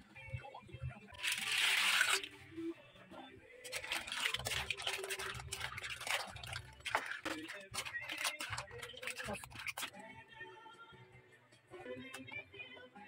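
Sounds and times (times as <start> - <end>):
splash and sizzle in wok: 3.7 - 9.9.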